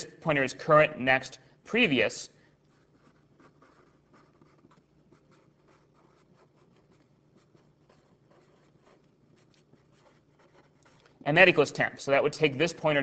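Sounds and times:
pen scratching while writing: 2.6s - 11.2s.

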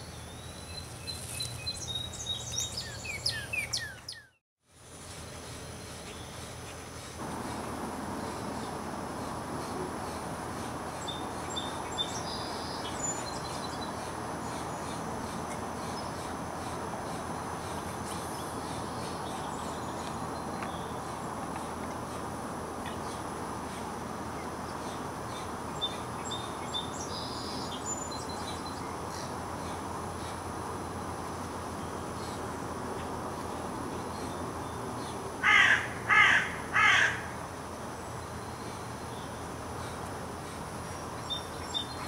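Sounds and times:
low rushing background: 7.2s - 20.0s.

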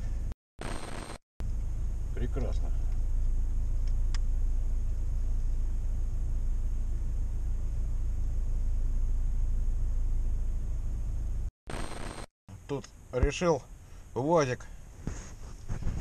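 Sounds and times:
car engine idling inside cabin: 1.4s - 11.5s.

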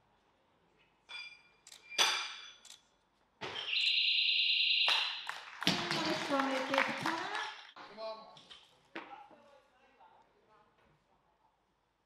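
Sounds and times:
crowd applause: 5.2s - 7.7s.

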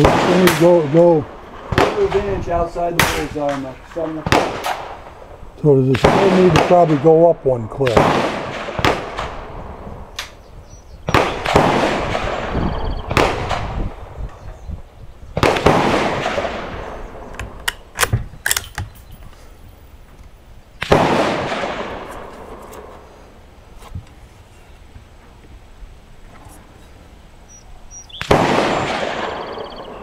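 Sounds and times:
rifle shots echoing: 0.0s - 10.4s, 11.0s - 14.1s, 15.4s - 18.8s, 20.8s - 22.9s, 28.1s - 30.0s.

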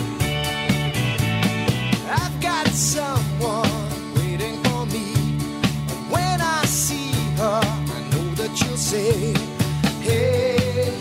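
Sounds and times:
song with drum beat: 0.0s - 11.0s
person singing: 2.0s - 5.4s, 6.1s - 11.0s.

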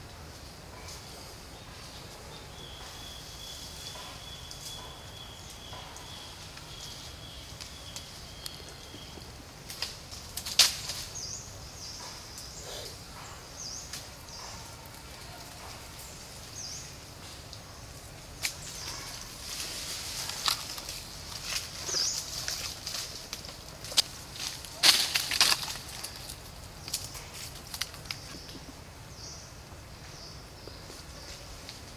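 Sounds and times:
twigs snapping and rustling: 9.6s - 11.2s, 18.4s - 28.6s.

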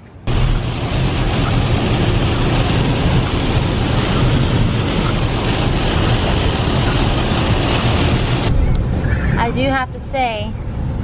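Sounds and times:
heavy rain on a car: 0.3s - 8.5s.

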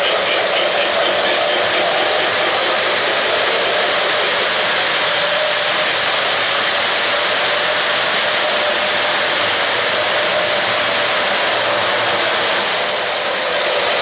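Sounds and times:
steady hum: 0.0s - 13.6s
metal wheels on model track: 0.0s - 14.0s.

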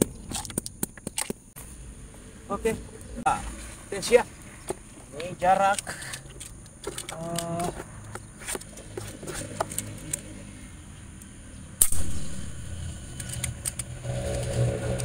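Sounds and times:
rifle handling clicks: 5.2s - 7.8s, 13.2s - 13.9s
air rifle shot crack: 11.8s - 13.6s.

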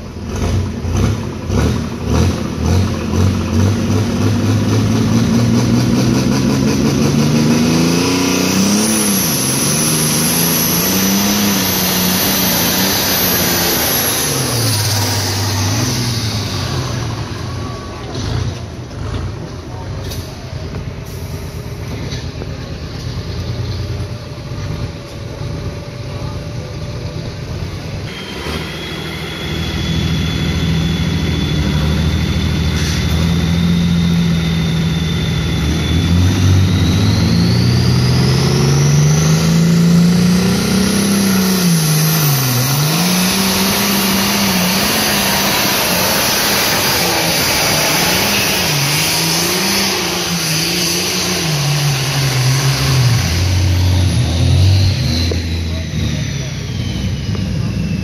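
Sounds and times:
diesel engine at full throttle: 0.0s - 58.0s
turbo whistle: 28.0s - 38.5s.

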